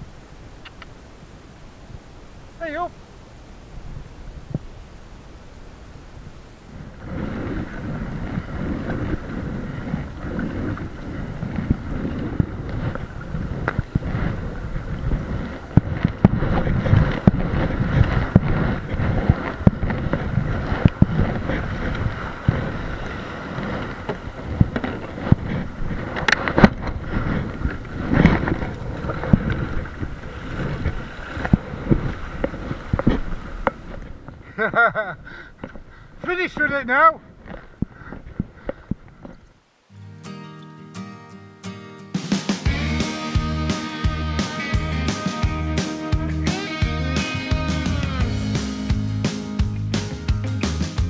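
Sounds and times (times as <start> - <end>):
water washing around hull: 0.0 - 39.5
wind buffeting microphone: 3.3 - 39.6
paddle strokes splashing: 3.7 - 39.4.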